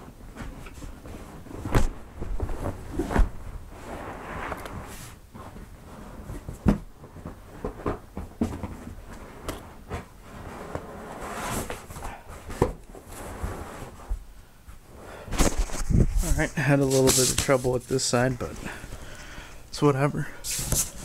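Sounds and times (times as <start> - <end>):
cardboard scraping and rustling: 15.3 - 18.6.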